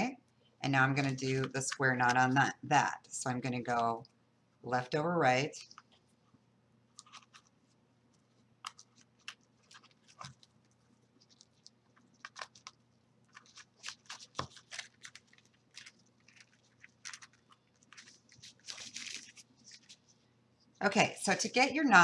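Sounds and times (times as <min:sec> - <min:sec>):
rustling and clicks of handling cords: 0:08.1 - 0:20.2.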